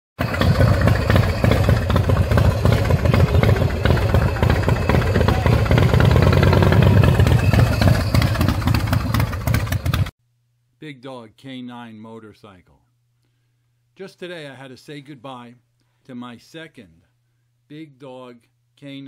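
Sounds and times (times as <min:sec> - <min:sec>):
motorcycle engine rumbling: 0:00.2 - 0:10.1.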